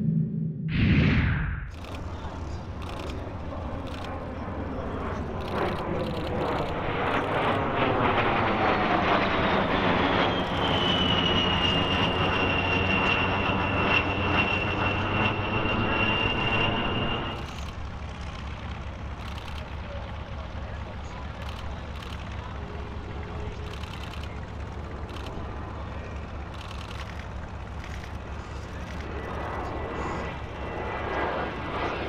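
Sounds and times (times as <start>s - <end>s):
high-pitched jet whine: 0.0s - 17.6s, 26.9s - 32.0s
jet aircraft flyby: 0.0s - 32.0s.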